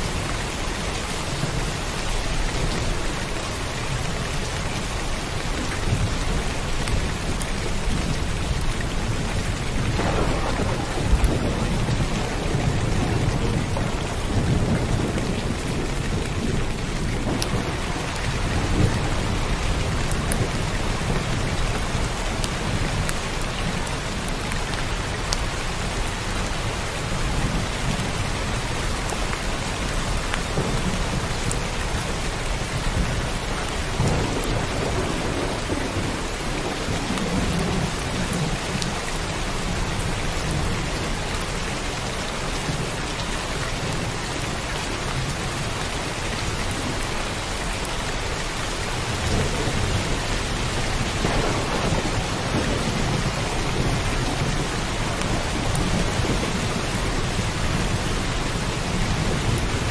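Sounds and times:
heavy rain pouring: 0.0s - 59.9s
thunder rumbling: 5.8s - 24.1s, 30.1s - 41.1s, 49.0s - 59.9s.

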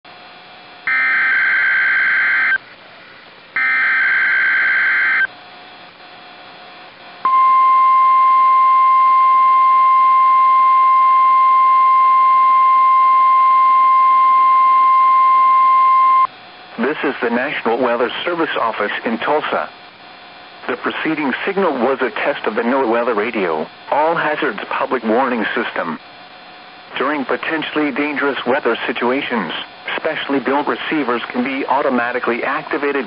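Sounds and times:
steady warning alarm tone: 0.8s - 2.6s, 3.6s - 5.3s, 7.2s - 16.3s
shrill digital data bursts: 3.6s - 5.3s.

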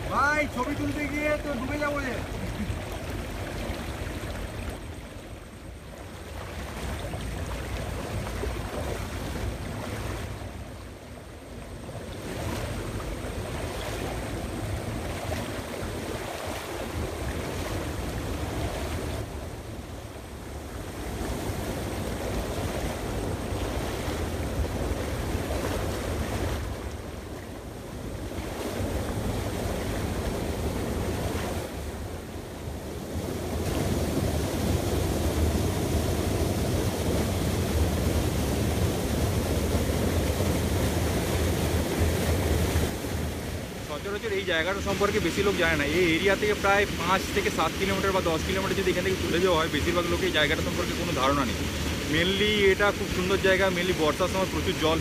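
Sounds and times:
stream rushing around rocks: 0.0s - 55.0s
person wading through water: 0.5s - 32.1s.

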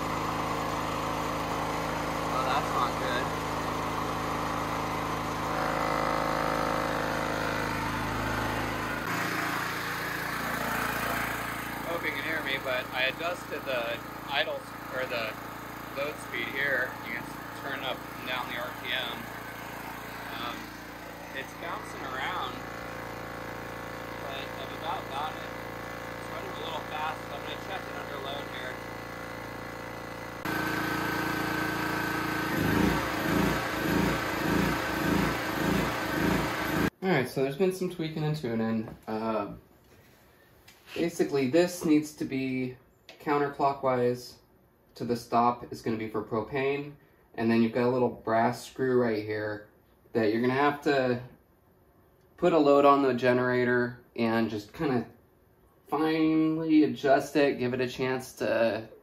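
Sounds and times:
generator engine running: 0.0s - 36.9s.

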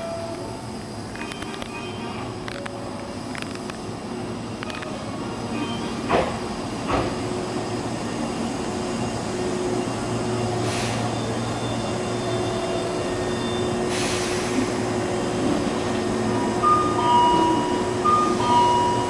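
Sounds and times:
electric train pulling in: 0.0s - 19.0s
air hisses: 10.6s - 11.2s, 13.9s - 14.8s.

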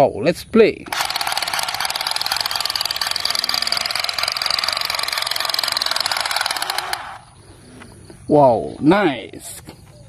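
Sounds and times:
toy gun machine-gun rattle: 0.8s - 7.3s.

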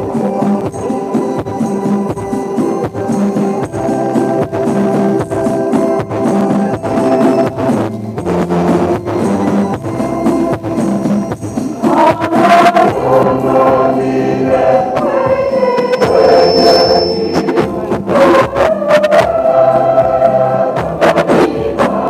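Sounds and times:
instrumental accompaniment with beat: 0.0s - 22.0s
choir singing a hymn: 11.8s - 22.0s.

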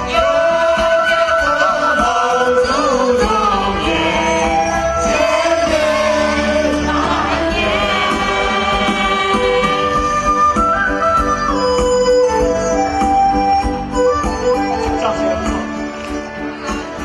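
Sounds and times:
group singing long wavering notes: 0.0s - 10.9s
live concert music over loudspeakers: 0.0s - 17.0s.

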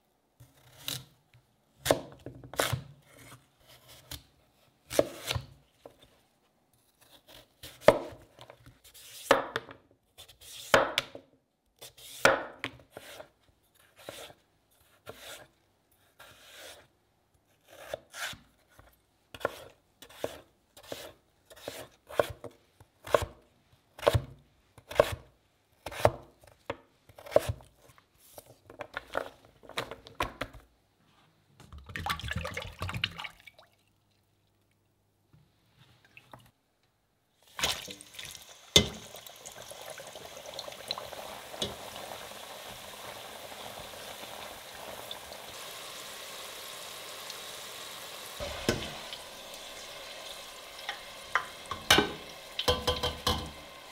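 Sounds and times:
oil pouring into steel saucepan: 37.6s - 53.9s.

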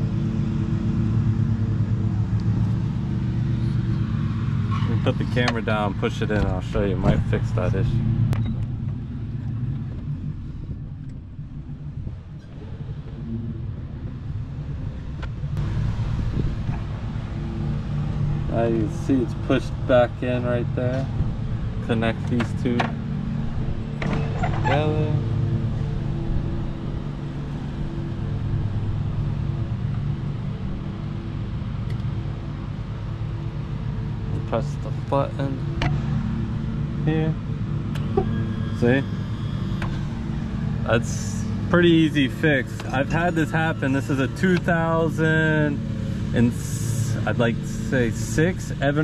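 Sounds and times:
low machine hum: 0.0s - 49.0s
steady low rumble: 0.0s - 49.0s.

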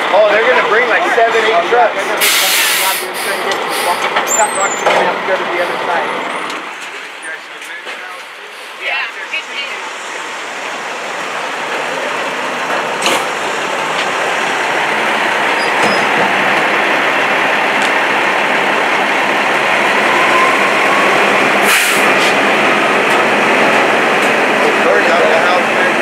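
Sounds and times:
fire roaring: 9.8s - 26.0s.

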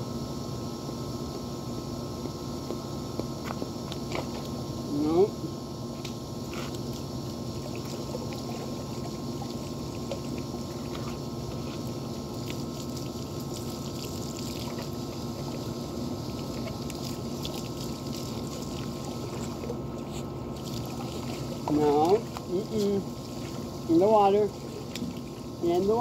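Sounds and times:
low steady hum: 0.0s - 26.0s
hose water splashing: 5.9s - 26.0s.

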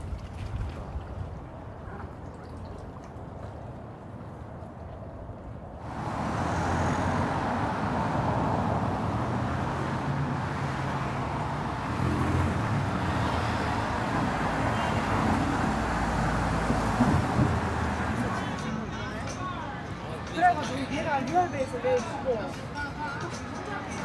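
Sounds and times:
cars driving past: 5.8s - 22.7s.

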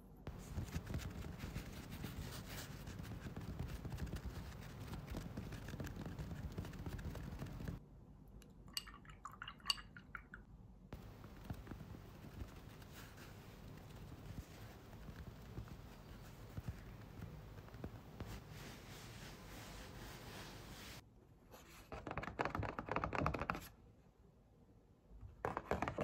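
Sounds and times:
paintbrush scratching on palette: 0.3s - 7.8s, 11.0s - 21.0s.

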